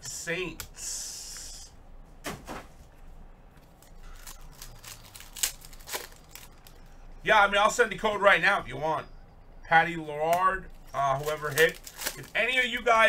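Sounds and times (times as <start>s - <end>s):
foil wrappers rustling: 3.8s - 6.8s, 10.7s - 13.0s.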